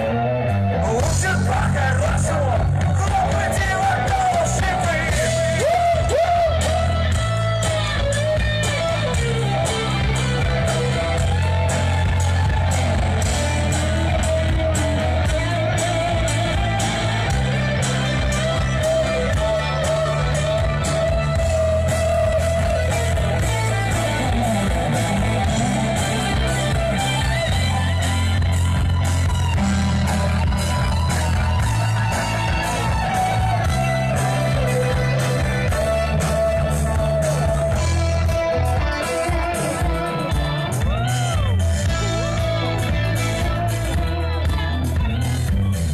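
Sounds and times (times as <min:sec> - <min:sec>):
bass line: 0:00.0 - 0:45.9
electric guitar: 0:00.0 - 0:45.9
person singing: 0:00.7 - 0:07.8
steady drum beat: 0:01.0 - 0:45.9.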